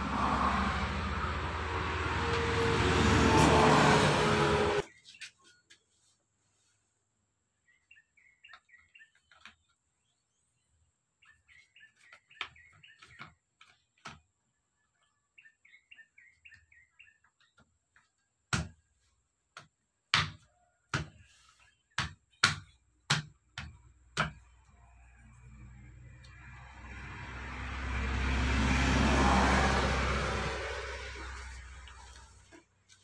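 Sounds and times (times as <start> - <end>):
vehicle engine noise: 0.0 - 4.8, 24.6 - 33.0
small birds chirping: 7.5 - 18.4.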